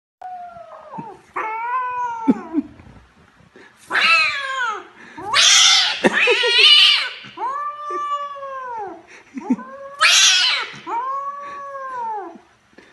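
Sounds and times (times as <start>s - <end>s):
kitten yowling: 0.2s - 2.6s, 3.9s - 9.0s, 9.6s - 12.4s.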